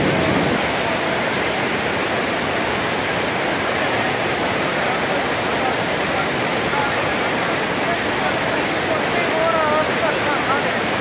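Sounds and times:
mountain river rushing: 0:00.0 - 0:11.0.

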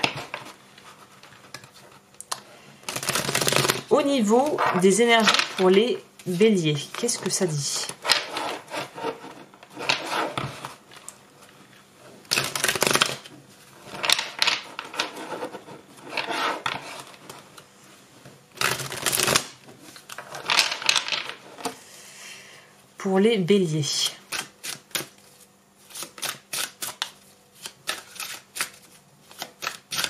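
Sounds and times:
cards being shuffled: 0:02.9 - 0:09.2.

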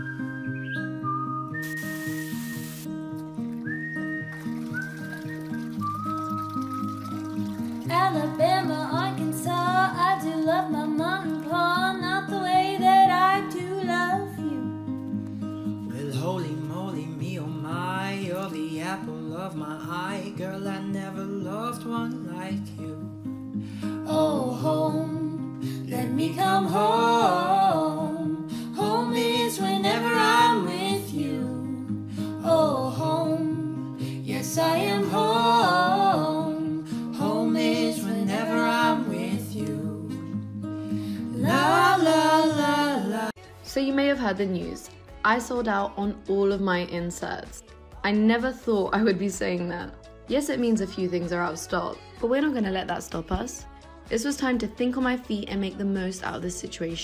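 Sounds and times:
plucked acoustic guitar: 0:00.0 - 0:43.4
person singing slow melody: 0:23.8 - 0:43.6.

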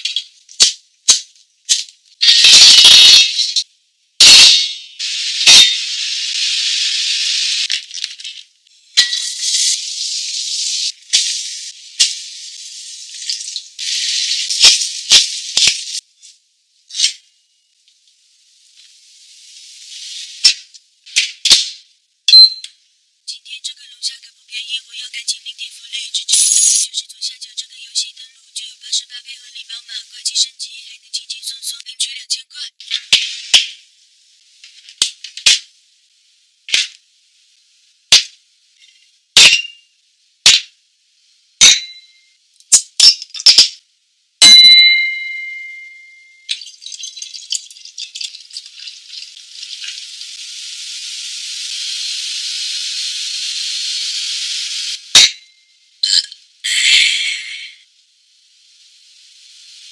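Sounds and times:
sauce sizzling in wok: 0:04.2 - 0:07.8, 0:08.7 - 0:16.2, 0:18.2 - 0:21.6, 0:46.5 - 0:55.3, 0:56.0 - 0:59.9
brief glassy ring: 0:44.5 - 0:46.4.

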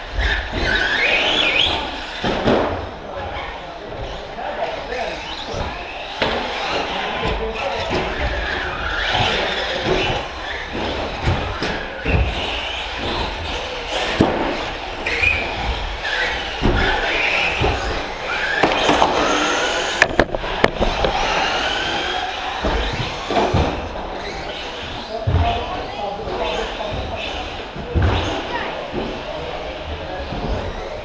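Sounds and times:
toy trucks knocking on track: 0:16.4 - 0:24.3.

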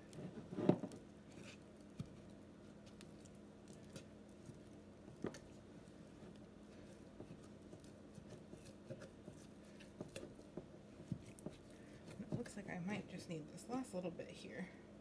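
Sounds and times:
spatula stirring wet starter: 0:00.0 - 0:14.0.

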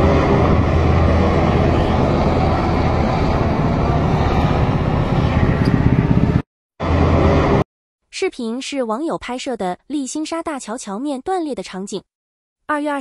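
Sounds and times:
helicopter rotor and engine drone: 0:00.0 - 0:07.6.

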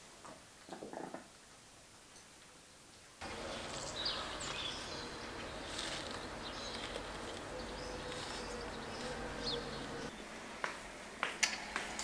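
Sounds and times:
small birds chirping: 0:03.2 - 0:10.4.

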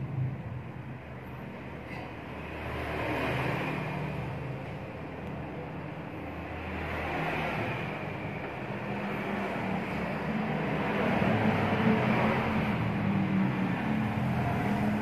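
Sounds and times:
mechanical drone with low hum: 0:00.0 - 0:02.9.

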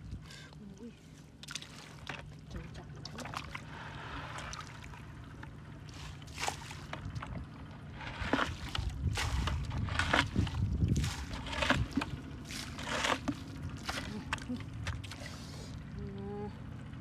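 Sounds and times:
mud squelching: 0:00.0 - 0:16.4
hands splashing in muddy water: 0:01.3 - 0:05.1, 0:05.8 - 0:07.4, 0:08.0 - 0:15.7
plastic bucket pushed into puddle: 0:03.0 - 0:05.0, 0:05.9 - 0:15.5.

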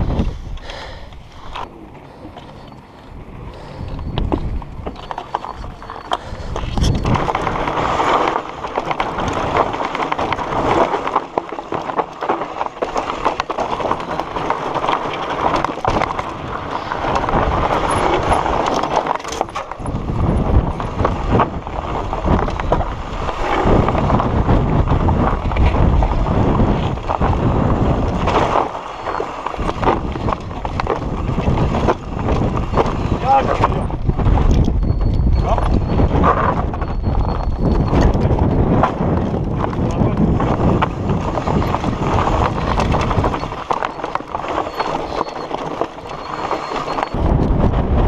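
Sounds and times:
wind buffeting microphone: 0:00.0 - 0:00.8, 0:01.7 - 0:10.7, 0:15.4 - 0:28.7, 0:29.5 - 0:48.0
bike rattling over bumps: 0:00.0 - 0:48.0
tyres crunching on gravel: 0:00.0 - 0:48.0.

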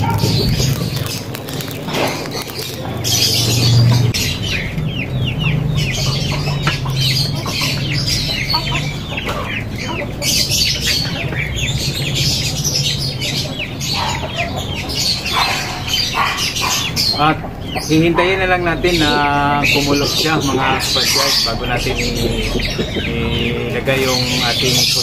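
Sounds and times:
chickens clucking: 0:00.0 - 0:25.0
steady low hum: 0:15.9 - 0:24.8.

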